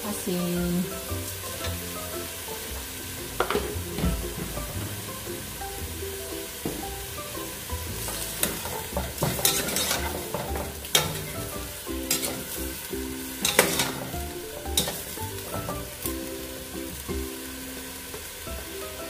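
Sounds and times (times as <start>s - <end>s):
chicken sizzling in a pot: 0.0s - 19.0s
metal ladle scraping pot: 1.4s - 15.9s.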